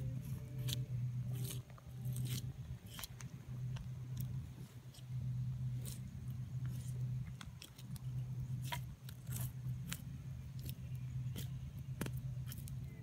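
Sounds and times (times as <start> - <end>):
low hum: 0.0 - 13.0
knife scraping fish scales: 0.2 - 3.1, 8.6 - 10.0.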